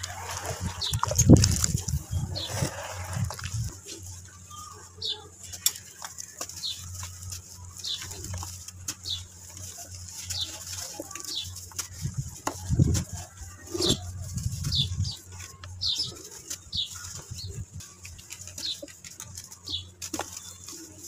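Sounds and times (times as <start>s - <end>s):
dirt crumbling by hand: 5.0s - 21.0s
bird chirping: 13.8s - 17.7s.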